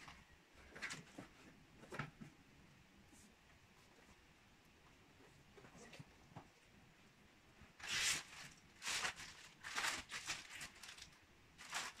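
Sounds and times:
plastic bag crinkling: 0:07.8 - 0:12.0.

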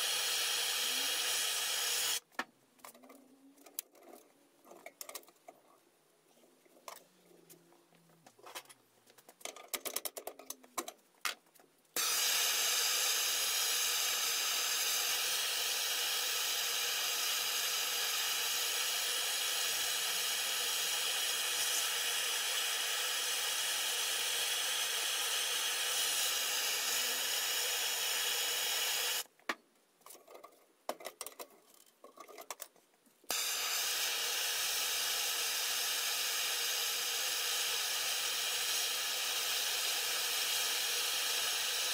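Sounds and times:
gas torch hissing: 0:00.0 - 0:02.2, 0:12.0 - 0:29.3, 0:33.3 - 0:41.9.

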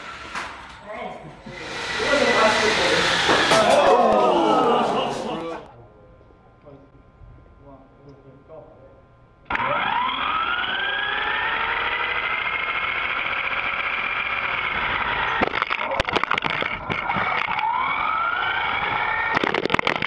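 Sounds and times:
electric motor whining: 0:01.4 - 0:04.8, 0:09.5 - 0:20.0
toy car crashing with knocks: 0:03.2 - 0:04.0, 0:14.9 - 0:20.0.

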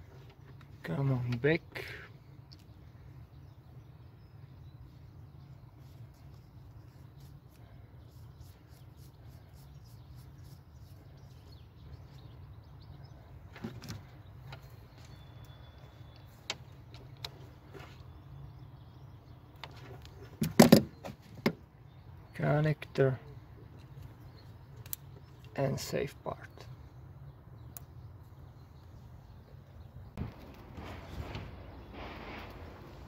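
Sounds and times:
low background hum: 0:00.0 - 0:20.4.

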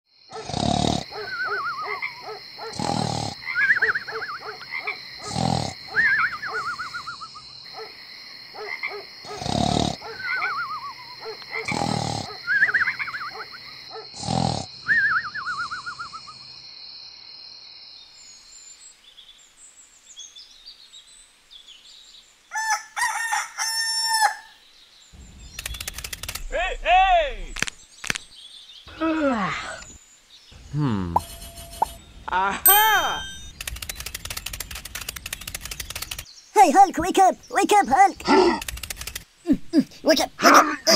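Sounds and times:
cartoon snoring: 0:00.3 - 0:01.2, 0:02.7 - 0:03.7, 0:05.2 - 0:06.1, 0:09.3 - 0:10.0, 0:11.6 - 0:12.6, 0:14.1 - 0:14.8, 0:30.7 - 0:31.3
steady high hiss: 0:24.7 - 0:28.8.

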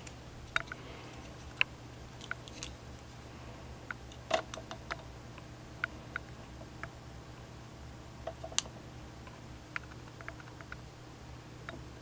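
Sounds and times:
low steady hum: 0:00.0 - 0:12.0
faint clicks and taps: 0:08.2 - 0:10.8.

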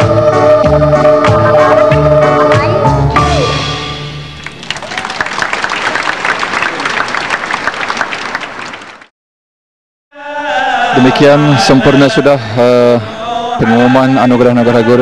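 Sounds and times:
audience applauding: 0:04.4 - 0:09.1.

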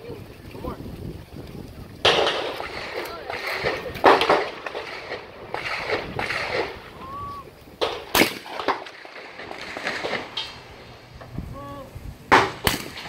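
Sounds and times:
shotgun shots: 0:02.0 - 0:06.9, 0:07.8 - 0:10.8, 0:12.3 - 0:13.0.

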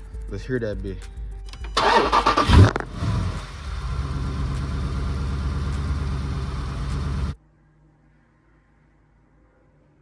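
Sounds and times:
car engine revving and idling: 0:02.2 - 0:07.4.

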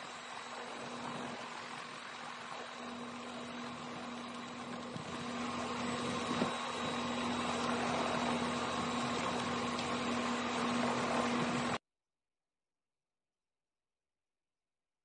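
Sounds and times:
helicopter engine and rotor: 0:00.0 - 0:11.8.

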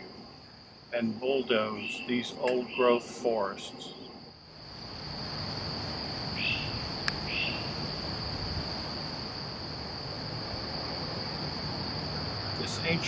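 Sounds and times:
high-pitched insect chorus: 0:00.0 - 0:13.0
chirping bird calls: 0:01.4 - 0:04.2, 0:06.4 - 0:07.7.

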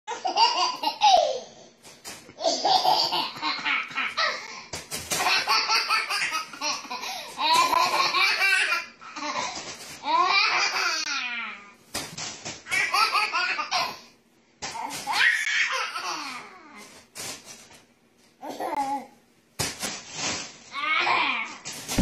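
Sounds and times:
toddler laughing: 0:02.4 - 0:04.5, 0:15.1 - 0:16.6.

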